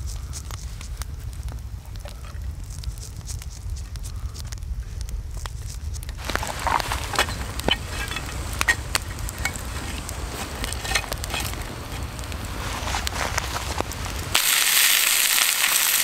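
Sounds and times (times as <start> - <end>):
campfire crackling and popping: 0.0 - 16.0
fish sizzling in a frying pan: 6.2 - 16.0.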